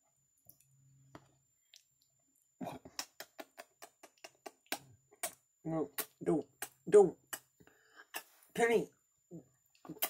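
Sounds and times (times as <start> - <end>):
wet lip-smacking and kissing clicks: 2.8 - 8.3, 9.8 - 10.0.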